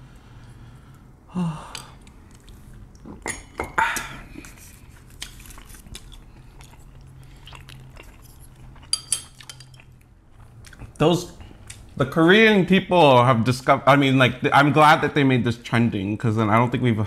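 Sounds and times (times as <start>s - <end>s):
low steady hum: 0.0s - 17.0s
chewing: 2.0s - 3.2s, 4.3s - 12.0s.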